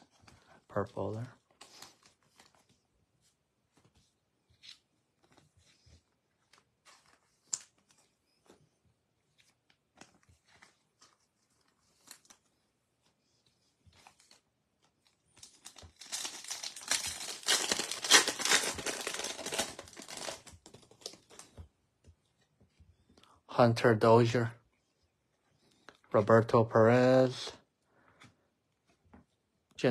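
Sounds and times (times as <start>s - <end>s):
card pack wrapper crinkling: 15.0s - 21.5s.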